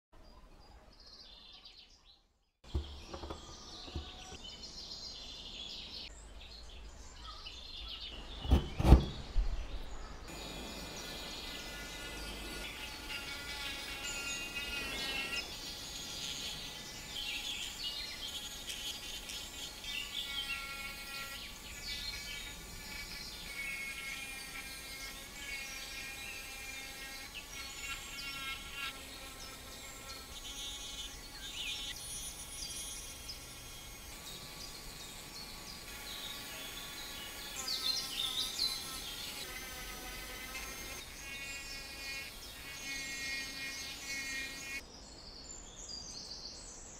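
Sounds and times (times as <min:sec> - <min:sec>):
rotary tool grinding wood: 0:02.7 - 0:04.4, 0:10.3 - 0:44.8.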